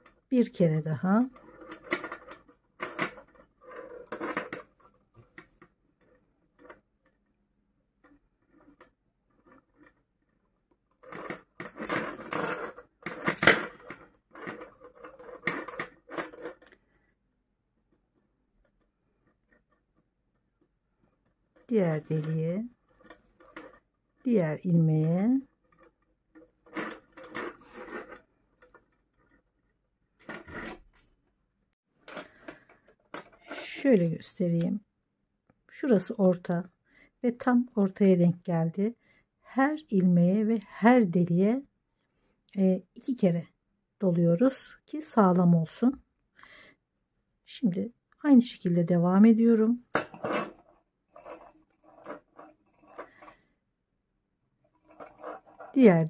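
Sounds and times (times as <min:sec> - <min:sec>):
metal purse frame clinking: 0:11.0 - 0:16.7, 0:49.9 - 0:53.4, 0:54.7 - 0:55.8
rustling and light scraping: 0:26.6 - 0:31.0, 0:54.7 - 0:55.9.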